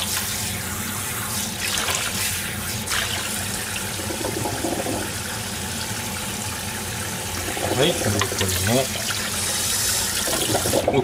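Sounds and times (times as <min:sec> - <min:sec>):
tap water splashing: 0:04.0 - 0:05.1, 0:07.4 - 0:09.3.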